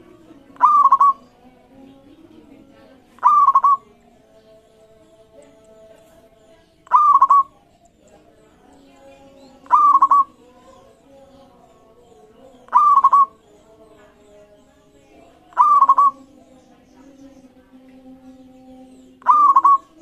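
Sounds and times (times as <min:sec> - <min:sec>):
dove cooing: 0:00.0 - 0:01.4, 0:03.2 - 0:03.9, 0:06.8 - 0:08.2, 0:09.6 - 0:10.9, 0:12.6 - 0:13.4, 0:15.5 - 0:16.4, 0:19.2 - 0:20.0.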